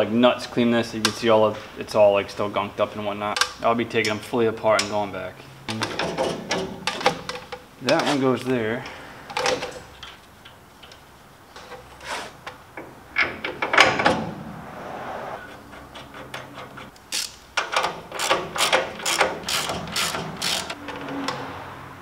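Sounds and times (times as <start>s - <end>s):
ratchet wrench clicking: 17.0s - 20.8s.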